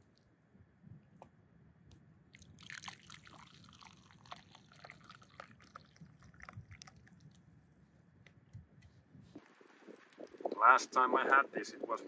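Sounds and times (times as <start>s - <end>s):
liquid poured into a cup: 2.3s - 7.5s.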